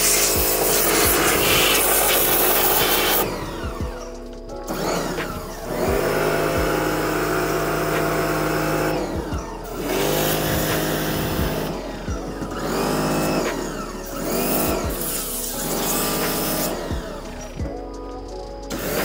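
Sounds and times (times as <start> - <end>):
water spray hissing: 0.0 - 3.3, 14.1 - 17.4
pressure washer motor and pump: 0.0 - 3.8, 4.7 - 17.5, 18.7 - 19.0.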